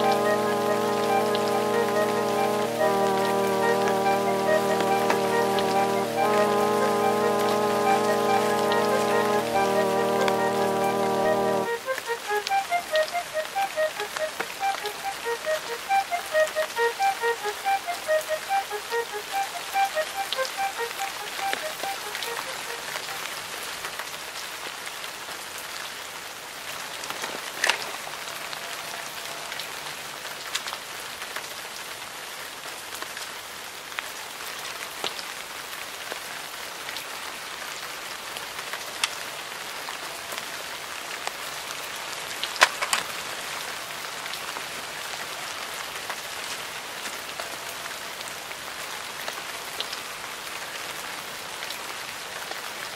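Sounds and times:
short melody: 0.0 - 23.2
steady rain falling: 0.0 - 52.9.

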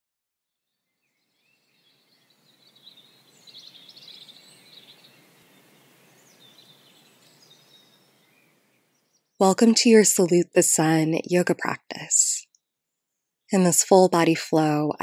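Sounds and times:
faint birdsong: 0.5 - 9.6
soft steady hiss: 1.0 - 10.4.

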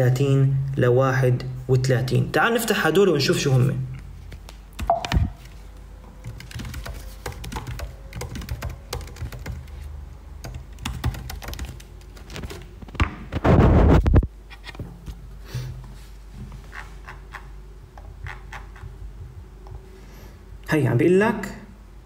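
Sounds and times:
laptop keys clicking: 6.2 - 9.8, 10.4 - 12.7.

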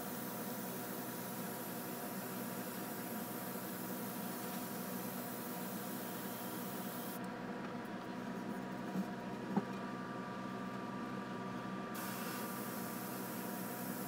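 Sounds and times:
airbrush hissing: 12.0 - 14.0.

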